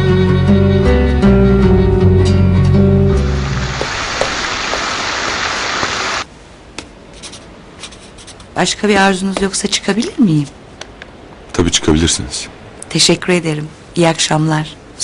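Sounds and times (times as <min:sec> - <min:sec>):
background music: 0:00.0 - 0:05.2
fountain splashing: 0:03.1 - 0:06.2
pen scratching on paper: 0:07.2 - 0:08.4.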